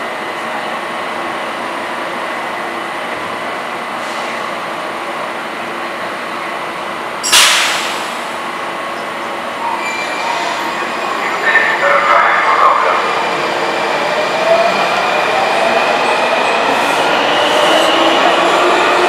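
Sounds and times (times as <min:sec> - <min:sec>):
loud hiss of air: 0:07.2 - 0:08.4.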